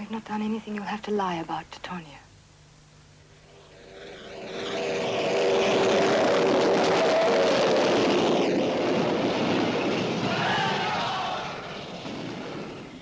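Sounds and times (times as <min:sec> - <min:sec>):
loud droning machine noise: 0:03.3 - 0:13.0.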